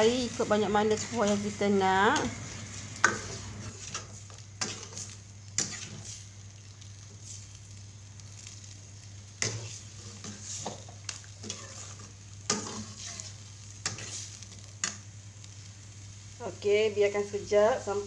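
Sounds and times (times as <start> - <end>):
metal ladle scraping a pot: 2.4 - 6.2, 11.4 - 14.4.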